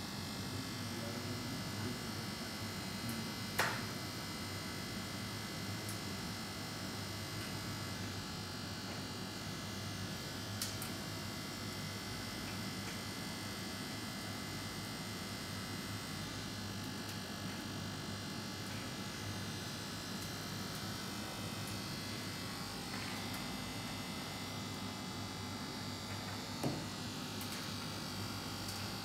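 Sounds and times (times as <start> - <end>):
electrical buzz and hum: 13.5 - 29.0.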